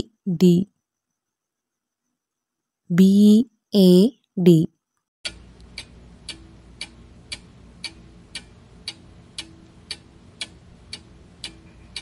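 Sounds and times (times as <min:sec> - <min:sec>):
faint steady hum: 0:00.0 - 0:12.0
clock ticking: 0:05.2 - 0:12.0.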